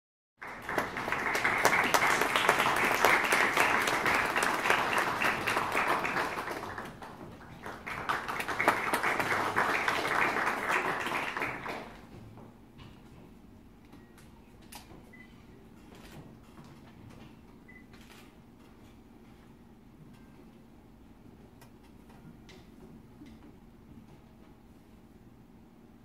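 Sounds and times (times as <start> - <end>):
audience applauding: 0.4 - 12.1.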